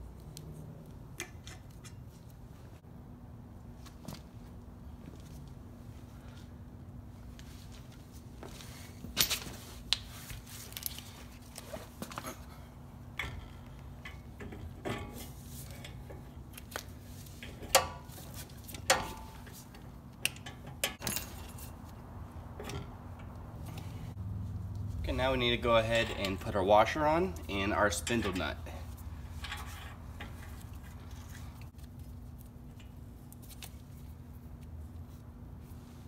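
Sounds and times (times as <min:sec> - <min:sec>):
metallic clinks and clunks: 0:18.8 - 0:21.8.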